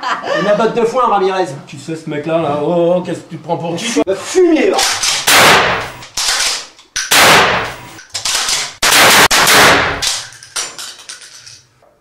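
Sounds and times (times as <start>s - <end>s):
shotgun blasts: 4.8s - 6.4s, 7.1s - 7.9s, 8.5s - 10.3s.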